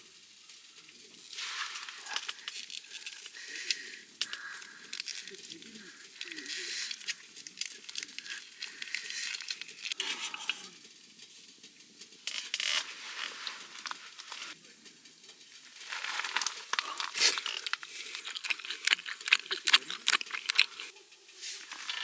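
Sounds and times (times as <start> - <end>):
plastic packet crinkling: 1.2 - 10.7, 12.4 - 14.6, 15.6 - 20.9, 21.6 - 22.0.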